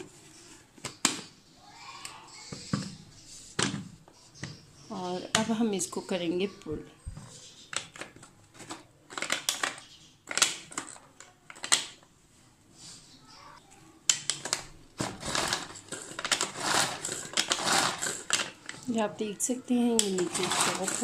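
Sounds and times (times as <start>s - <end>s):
pull-cord food chopper clattering: 15.1s - 18.5s, 20.1s - 21.0s.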